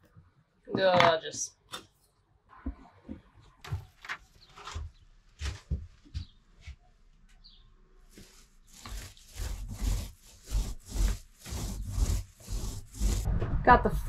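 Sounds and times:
paint strokes on ceiling: 8.1 - 13.3.

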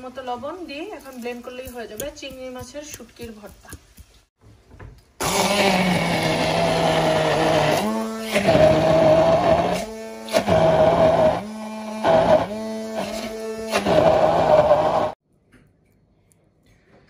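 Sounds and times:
hand blender motor grinding: 5.2 - 15.2.

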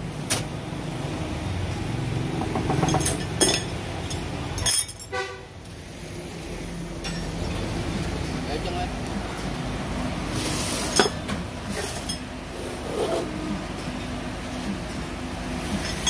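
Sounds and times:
bending machine humming: 0.0 - 16.0
metal clanks: 2.5 - 5.2.

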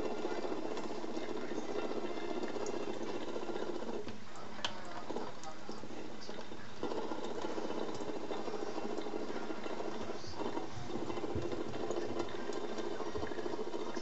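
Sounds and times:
tap water splashing on plastic: 9.0 - 14.0.

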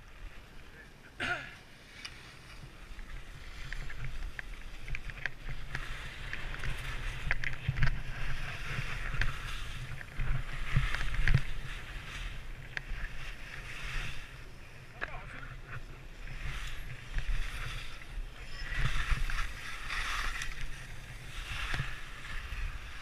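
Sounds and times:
skis scraping on snow: 1.8 - 23.0
wind rumble on microphone: 2.1 - 23.0.

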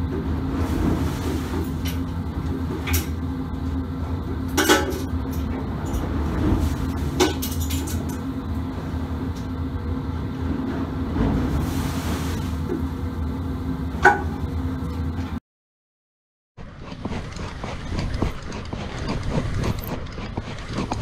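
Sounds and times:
ship engine drone: 0.0 - 15.4.

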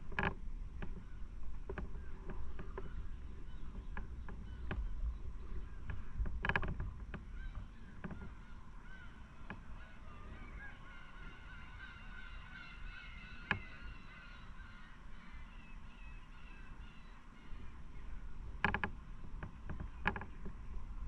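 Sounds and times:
many birds calling: 0.9 - 6.4, 7.1 - 18.7
harsh bird call: 7.3 - 17.8.

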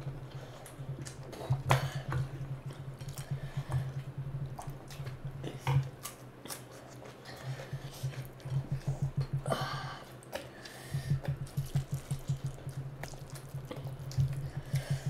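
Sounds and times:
steady low hum: 0.0 - 15.0
chewing: 0.1 - 9.4, 10.0 - 15.0
hands squishing rice: 10.0 - 15.0.

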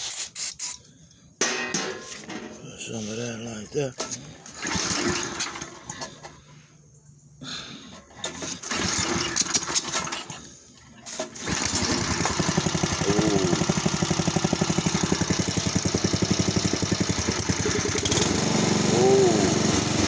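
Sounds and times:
small engine cranking and running: 4.4 - 6.3, 8.2 - 10.4, 11.1 - 20.0.

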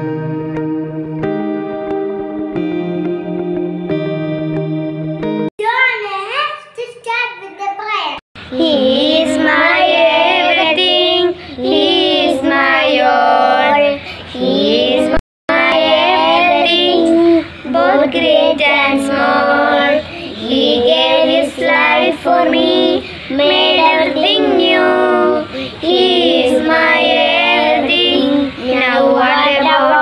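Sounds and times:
girls singing: 8.5 - 30.0.

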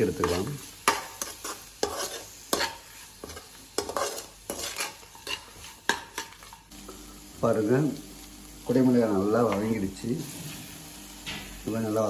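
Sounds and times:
light oil sizzle: 0.0 - 12.0
metal spatula scraping a pan: 0.1 - 6.7.

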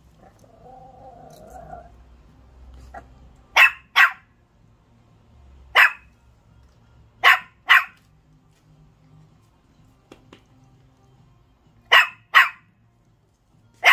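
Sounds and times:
puppy barking: 2.8 - 4.4, 5.7 - 6.2, 7.2 - 8.1, 11.8 - 12.7.

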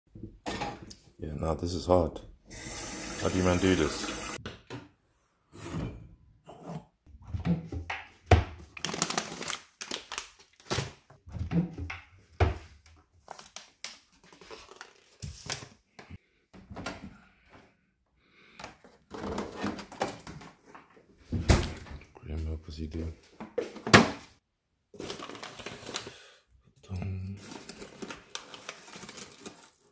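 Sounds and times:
cupboard doors opening and shutting: 7.1 - 8.6, 11.2 - 12.7, 21.2 - 22.1, 23.6 - 24.3.

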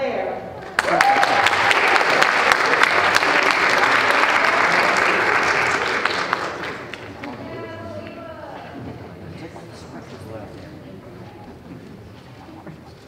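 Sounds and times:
audience applauding: 0.6 - 8.2.

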